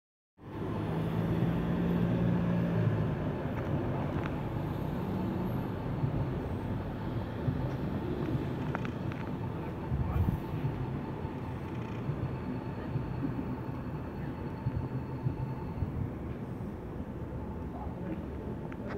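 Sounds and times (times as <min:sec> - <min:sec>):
urban traffic rumble: 0:00.4 - 0:18.9
vehicle engine low hum: 0:00.4 - 0:18.9.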